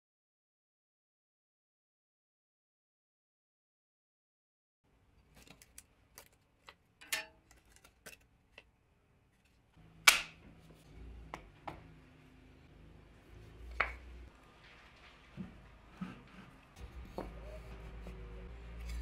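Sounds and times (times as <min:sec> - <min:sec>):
plywood pieces clicking and tapping: 0:13.7 - 0:14.2.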